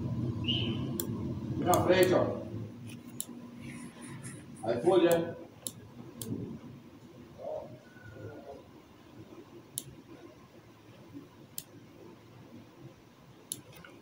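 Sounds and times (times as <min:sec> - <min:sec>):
faint room noise: 0:00.0 - 0:14.0
computer mouse clicking: 0:05.1 - 0:06.4, 0:13.5 - 0:14.0.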